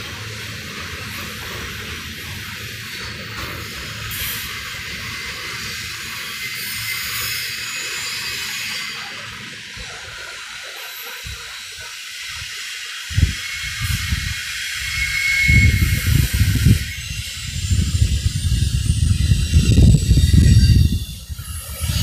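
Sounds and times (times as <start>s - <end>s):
freight train rolling past: 0.0s - 22.0s
hiss of cars on rails: 0.0s - 22.0s
low thumps and buffeting: 15.5s - 22.0s.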